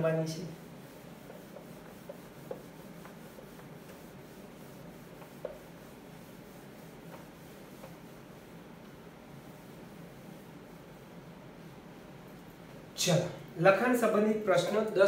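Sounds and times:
pen rubbing on writing surface: 0.8 - 8.3.

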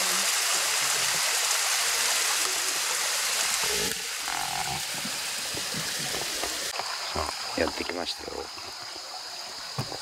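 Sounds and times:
waterfall splashing onto rocks: 0.0 - 7.0.

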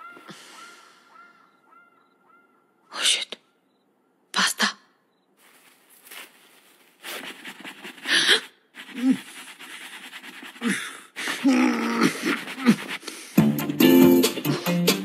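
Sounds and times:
heavy panting breaths: 7.1 - 13.4
strained grunts: 10.6 - 13.0.

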